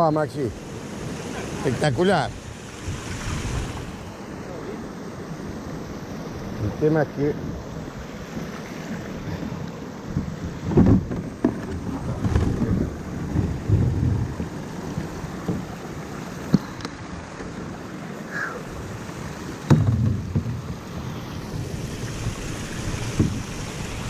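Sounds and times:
knocks against plastic hull: 10.6s - 14.4s, 19.6s - 20.9s
low rumbling: 10.8s - 14.8s.

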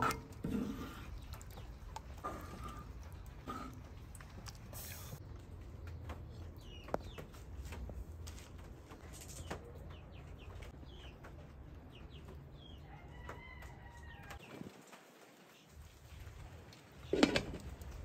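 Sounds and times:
birds chirping: 5.7s - 13.2s.

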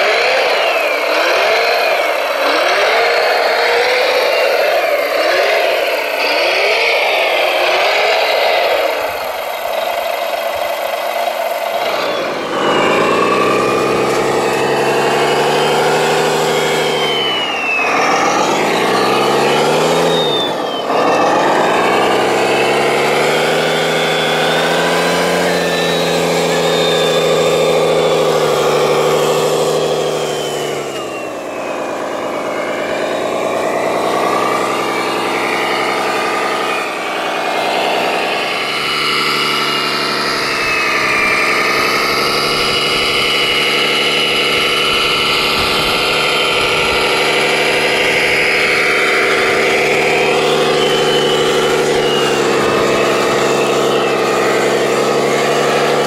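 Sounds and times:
model vehicle driving through gravel: 0.0s - 56.0s
simulated diesel engine revving: 0.0s - 56.0s.

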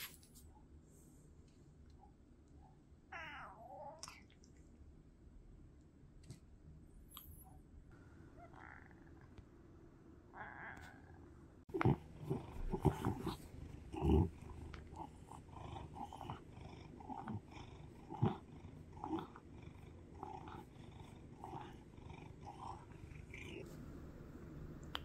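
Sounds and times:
cat purring: 10.4s - 25.0s.

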